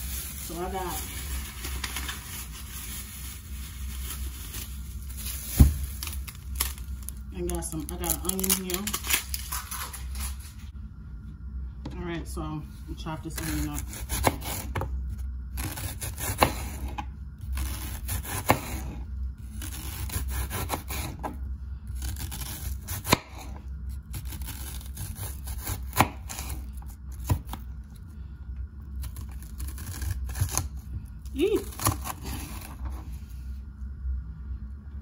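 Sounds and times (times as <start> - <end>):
knife sawing through onion: 19.6 - 21.2.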